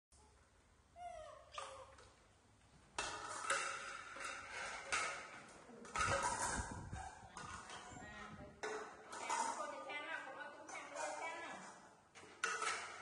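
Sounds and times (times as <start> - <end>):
plates clattering on tiled floor: 3.0 - 13.0.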